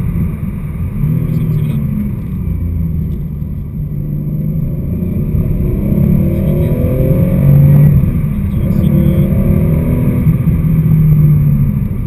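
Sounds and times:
car engine accelerating: 0:00.0 - 0:12.0.

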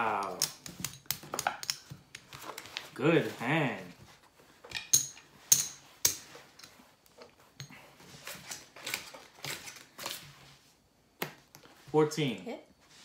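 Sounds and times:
playing cards being handled: 0:00.0 - 0:04.9.

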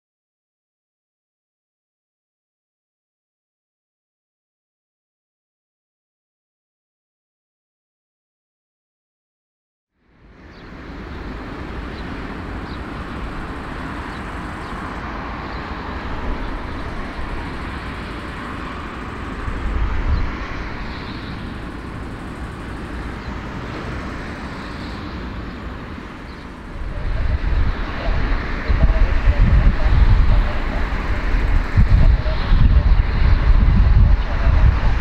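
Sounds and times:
jet airliner taxiing roar: 0:10.2 - 0:35.0.

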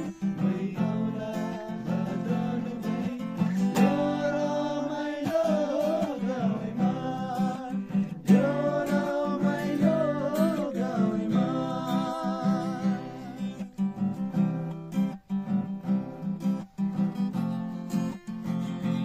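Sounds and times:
person singing long notes: 0:00.0 - 0:13.7
strummed acoustic guitar: 0:00.0 - 0:19.0.

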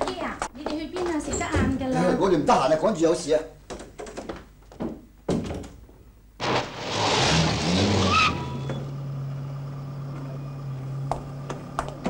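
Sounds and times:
car engine revving: 0:06.4 - 0:12.0
tyre squeal: 0:06.7 - 0:09.0.

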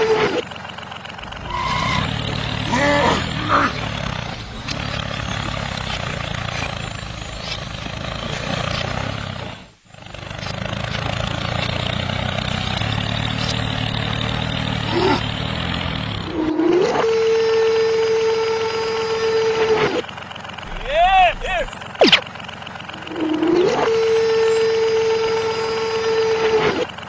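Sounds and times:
tractor engine droning: 0:00.0 - 0:27.0
brief rising tone: 0:01.2 - 0:02.7, 0:20.7 - 0:22.2.

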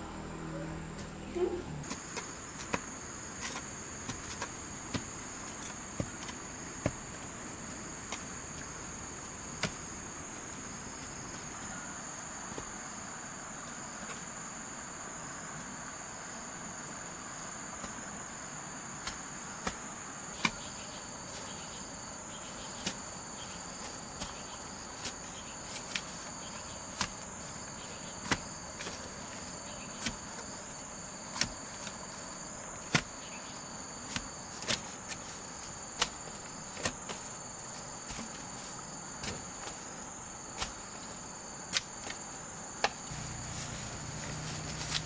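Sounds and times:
low hum: 0:00.0 - 0:01.9
insects chirring: 0:00.0 - 0:45.0.

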